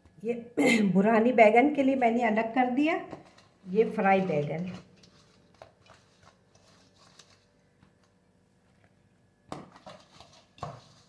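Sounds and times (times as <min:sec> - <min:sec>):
faint food handling in bowl: 0:03.0 - 0:11.0.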